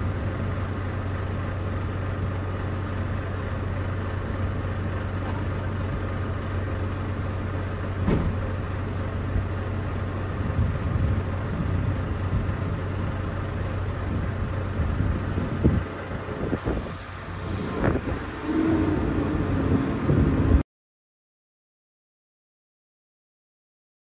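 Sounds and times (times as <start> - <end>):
diesel engine idling: 0.0 - 20.6
knocks and clunks: 7.9 - 8.5.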